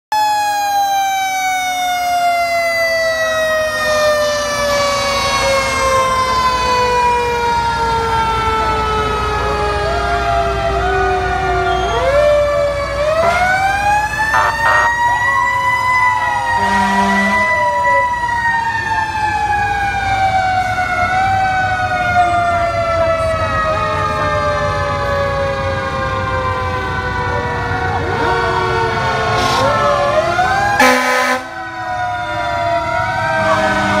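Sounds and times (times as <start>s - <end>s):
fire truck sirens wailing: 0.1s - 34.0s
diesel engines rumbling: 1.6s - 34.0s
air horn blasts: 14.3s - 15.2s, 16.2s - 17.7s, 30.8s - 31.6s.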